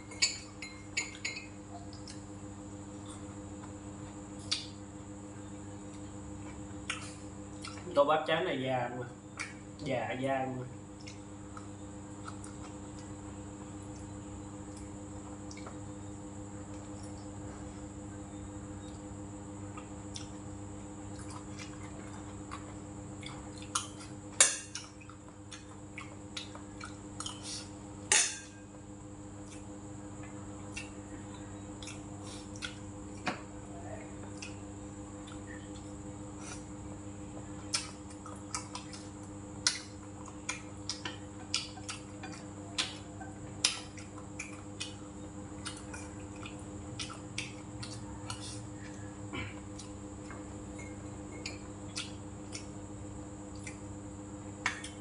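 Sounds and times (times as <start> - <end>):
steady background hum: 0.0 - 55.0
person chewing: 3.0 - 4.8, 5.8 - 7.9, 11.0 - 16.0, 18.8 - 27.8, 29.4 - 33.3, 34.2 - 37.0, 37.6 - 52.8, 53.5 - 53.9.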